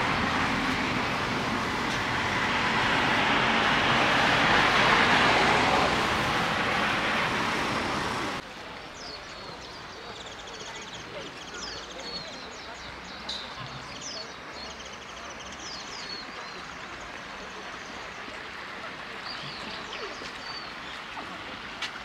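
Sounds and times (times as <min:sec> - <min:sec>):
road vehicle passing by: 0:00.0 - 0:08.4.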